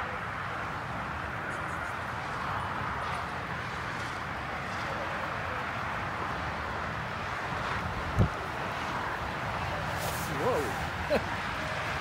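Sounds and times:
wind rumble on microphone: 7.6 - 11.0
distant indistinct voices: 8.3 - 12.0.

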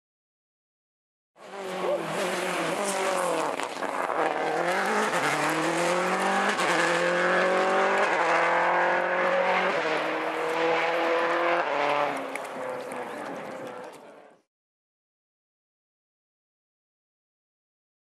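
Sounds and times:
car engine revving high: 1.4 - 13.8.

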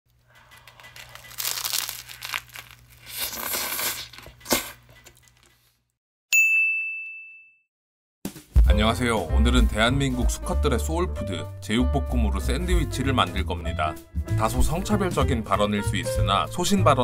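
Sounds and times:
bread crackling and tearing: 0.4 - 4.8
bright ding chime: 6.4 - 7.6.

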